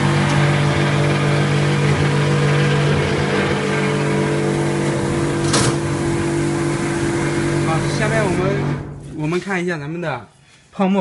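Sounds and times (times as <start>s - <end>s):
water pump humming: 0.0s - 9.4s.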